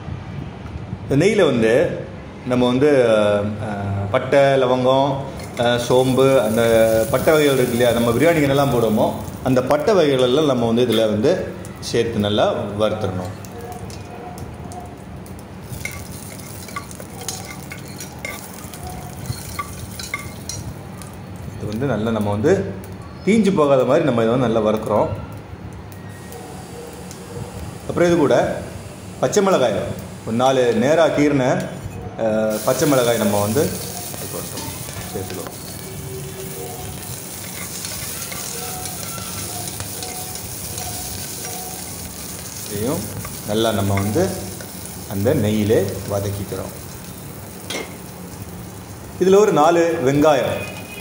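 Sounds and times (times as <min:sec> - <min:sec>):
spices sizzling in oil: 0:05.2 - 0:23.2, 0:25.9 - 0:30.9, 0:32.5 - 0:51.0
spoon clinking and scraping a pot: 0:05.3 - 0:09.1, 0:15.6 - 0:20.7, 0:32.5 - 0:44.8, 0:47.6 - 0:48.1
ladle scraping a pot: 0:15.7 - 0:20.6.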